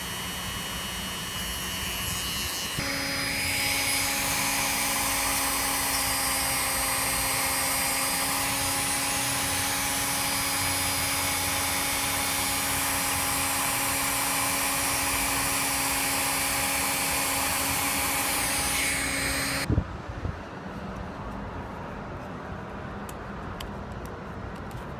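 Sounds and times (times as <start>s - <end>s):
rotary tool grinding plastic: 0.0s - 19.7s.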